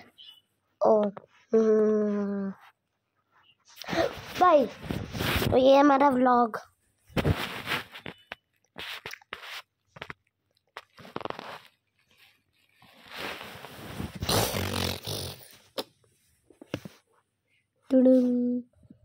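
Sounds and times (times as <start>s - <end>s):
fabric rustling against microphone: 1.3s - 5.9s, 7.0s - 10.2s, 10.8s - 14.9s.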